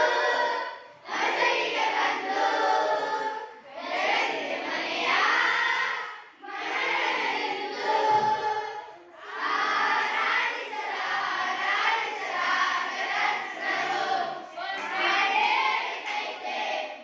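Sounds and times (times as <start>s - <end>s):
young voices singing together: 0.0s - 17.0s.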